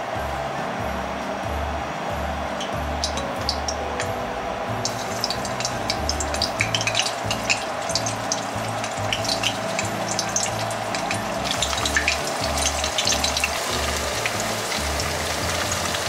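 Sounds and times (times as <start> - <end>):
soft background music: 0.0 - 16.0
chicken sizzling in hot oil: 3.0 - 4.2, 4.8 - 16.0.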